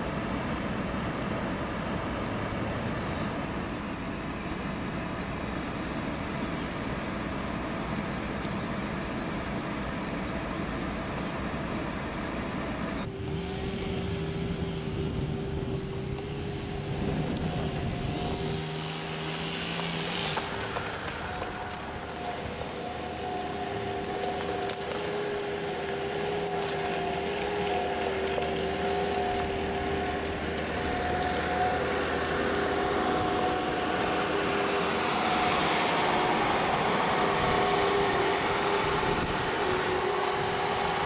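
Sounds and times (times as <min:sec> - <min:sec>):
vehicle engine running: 0:00.0 - 0:41.0.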